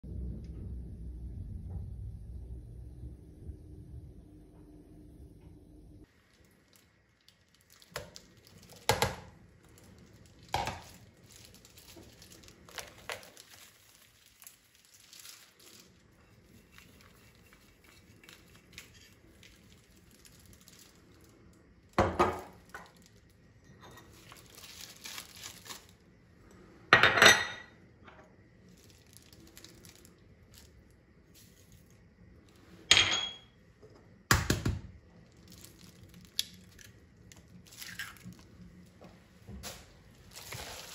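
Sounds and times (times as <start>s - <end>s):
dishes clinking on countertop: 26.9s - 27.8s, 32.9s - 33.5s.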